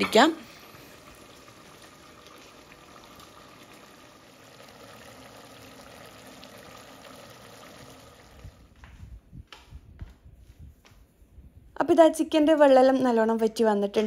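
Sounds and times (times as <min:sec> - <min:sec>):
curry bubbling in a pot: 0:00.2 - 0:08.8.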